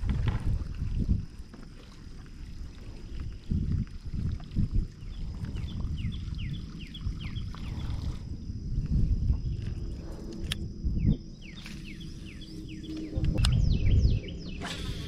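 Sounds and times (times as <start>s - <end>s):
low rumble: 3.5s - 14.6s
birds chirping: 5.0s - 8.2s, 11.0s - 15.0s.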